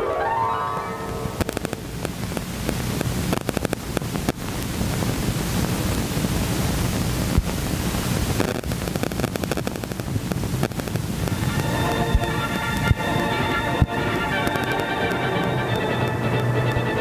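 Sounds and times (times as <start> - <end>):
film soundtrack hiss and crackle: 0.0 - 17.0
steady low rumble: 0.7 - 17.0
small clicks: 1.4 - 4.7, 8.4 - 13.0.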